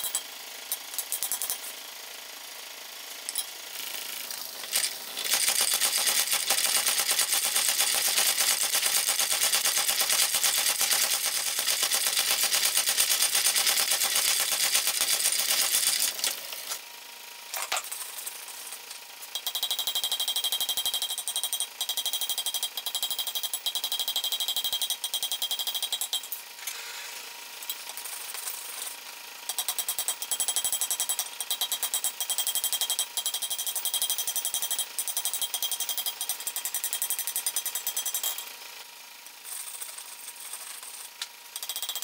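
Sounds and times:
hand hammer ringing on anvil: 0:29.5 - 0:38.4.

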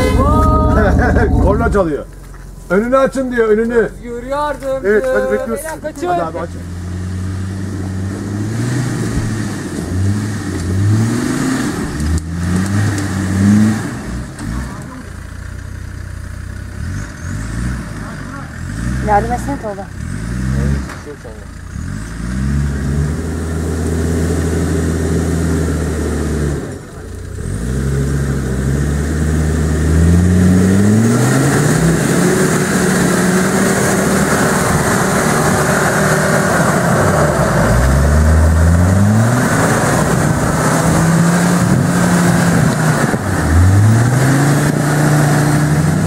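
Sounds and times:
steady rushing noise: 0:00.0 - 0:03.9
off-road vehicle engine revving: 0:00.0 - 0:46.0.

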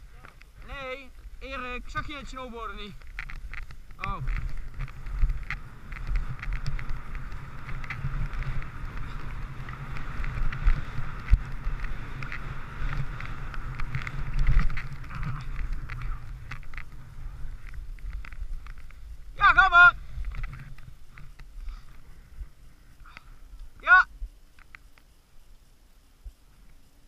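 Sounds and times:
wind buffeting camera: 0:00.0 - 0:25.1
ski scrapes and knocks: 0:01.9 - 0:19.1
skis hissing over snow: 0:04.2 - 0:23.5.

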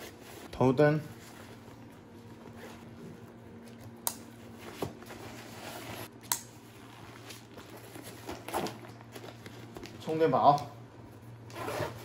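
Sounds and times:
faint hum: 0:00.0 - 0:12.0
nylon fabric rustling: 0:04.4 - 0:10.2.

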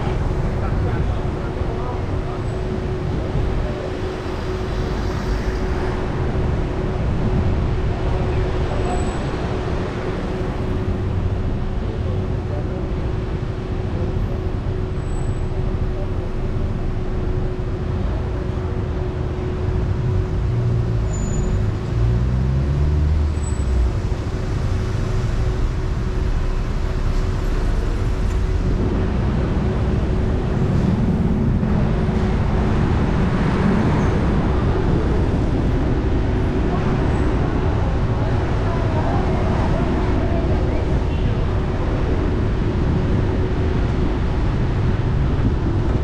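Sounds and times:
constant hum: 0:00.0 - 0:46.0
road noise: 0:00.0 - 0:46.0
car engine: 0:18.6 - 0:38.6.

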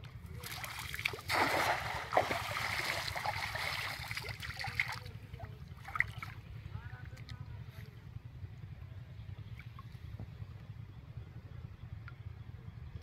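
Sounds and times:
water splashing and trickling: 0:00.3 - 0:07.2
net landing with a splash: 0:00.5 - 0:04.9.

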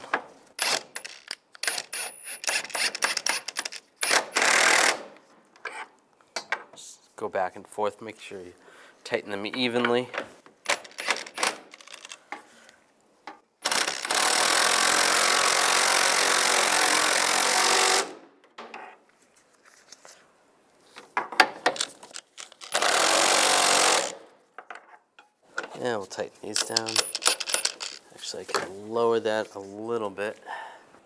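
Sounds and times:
impact wrench hammering bolts: 0:00.1 - 0:05.1, 0:09.5 - 0:12.1, 0:26.5 - 0:28.0
small metallic clicks: 0:26.5 - 0:28.0.

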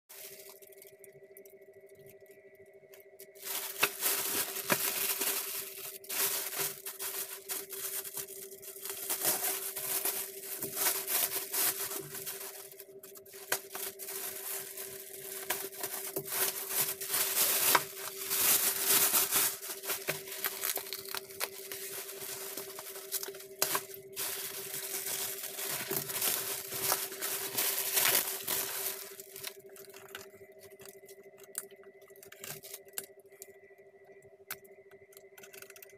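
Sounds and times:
plastic bag tearing and rustling: 0:00.1 - 0:00.8, 0:03.3 - 0:30.2
faint steady hum: 0:00.1 - 0:35.9.

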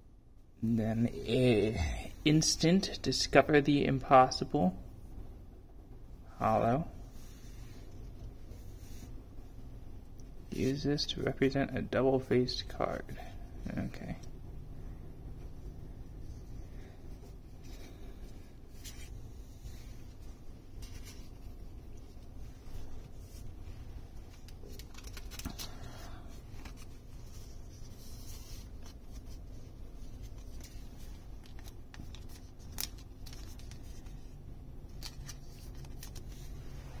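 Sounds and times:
low steady hum: 0:00.0 - 0:37.0
cards tapping and rustling: 0:24.2 - 0:25.9.

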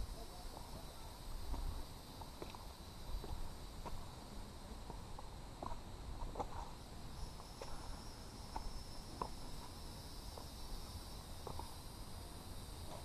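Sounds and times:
high insect buzz: 0:00.0 - 0:13.0
footsteps on rock: 0:04.8 - 0:06.8.

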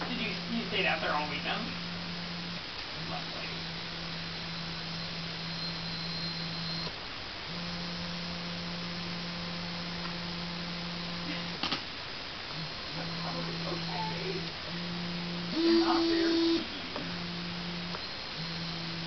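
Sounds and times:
small electric motors running: 0:00.0 - 0:11.8, 0:12.5 - 0:19.0.

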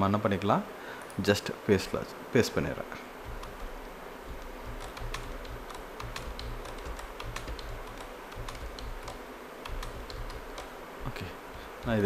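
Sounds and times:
keyboard keys clicking: 0:03.1 - 0:12.0.

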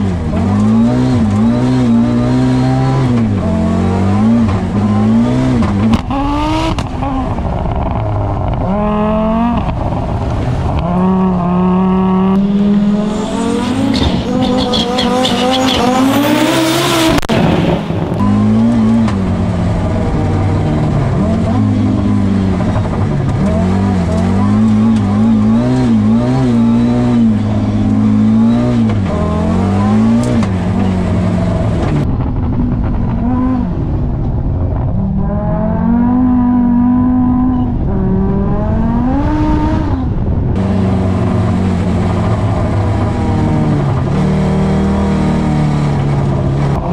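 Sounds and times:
rally car engine revving: 0:00.0 - 0:46.9.

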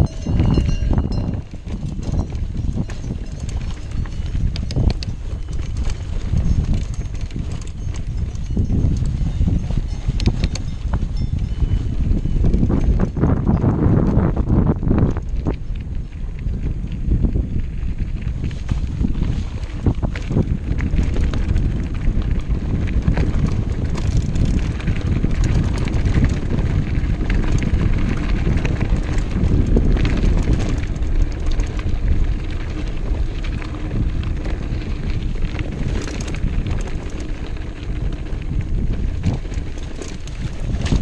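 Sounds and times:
bike rattling and clattering: 0:00.0 - 0:41.0
wind buffeting microphone: 0:00.0 - 0:41.0
tyres crunching over stones: 0:18.4 - 0:41.0.

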